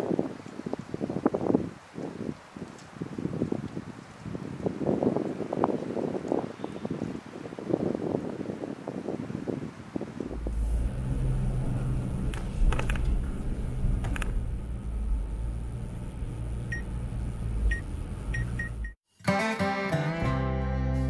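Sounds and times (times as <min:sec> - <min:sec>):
car engine humming: 0:10.3 - 0:19.0.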